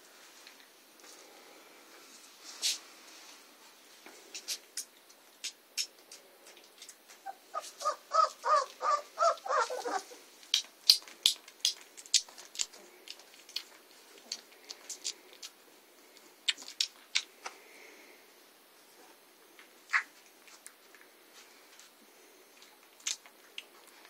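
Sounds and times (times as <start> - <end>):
puppies squeaking: 7.2 - 10.2.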